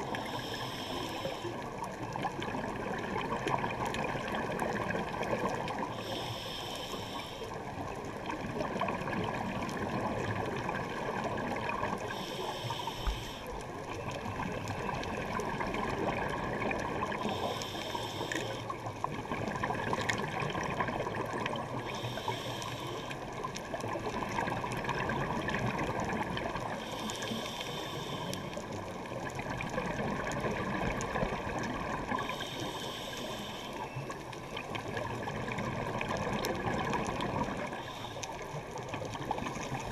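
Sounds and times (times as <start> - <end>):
regulator hissing inhale: 0.0 - 1.6, 5.9 - 7.6, 12.0 - 13.6, 17.2 - 18.8, 21.8 - 23.2, 26.8 - 28.7, 32.2 - 34.0, 37.7 - 38.5
bubbling rush of water: 0.0 - 6.3, 7.1 - 39.9.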